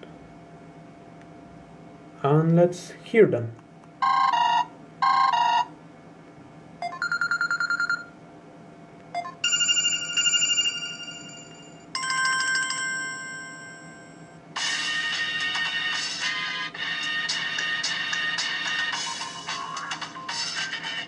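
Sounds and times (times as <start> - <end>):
phone ringtones playing: 4.0 - 5.7, 6.8 - 8.1, 9.2 - 14.2.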